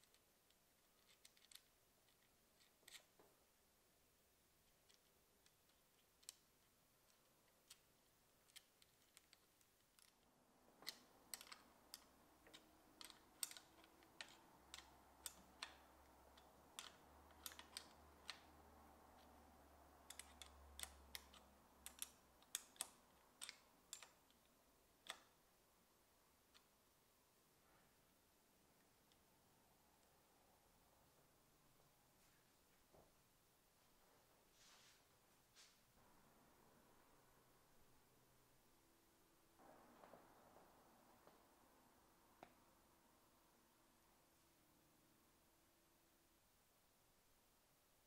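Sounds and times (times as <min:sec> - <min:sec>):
wrench clicking on metal: 0:20.0 - 0:24.3.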